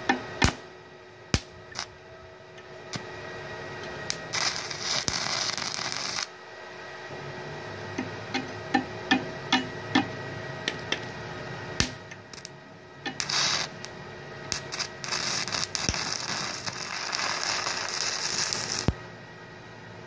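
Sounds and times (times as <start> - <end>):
crackling hissing welding arc: 1.3 - 2.0, 3.8 - 6.4, 11.8 - 19.0.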